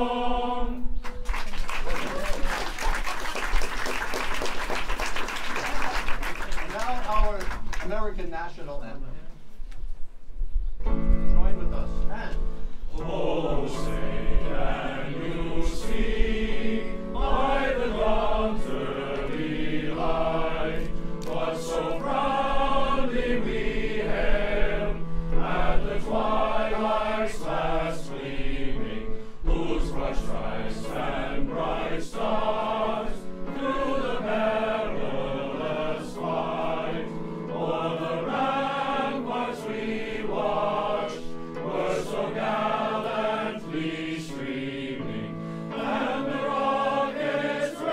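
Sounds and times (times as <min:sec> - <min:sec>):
men's choir singing in harmony: 0:00.0 - 0:01.0, 0:12.9 - 0:47.9.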